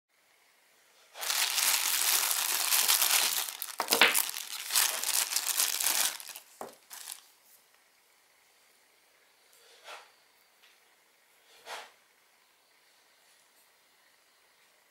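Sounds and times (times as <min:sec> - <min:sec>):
short crackles: 0:01.2 - 0:07.2
plastic bag crinkling: 0:01.2 - 0:07.3.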